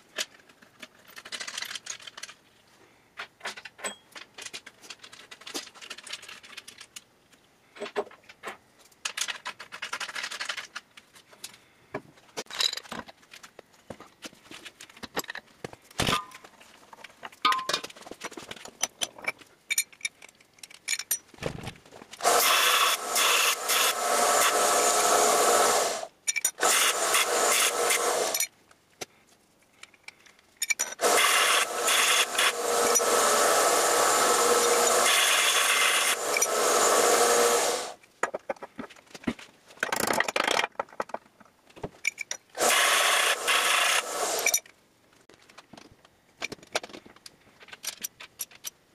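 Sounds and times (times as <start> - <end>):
belt sander grinding steel pipe: 22.2 - 28.5, 31.0 - 38.0, 42.6 - 44.6.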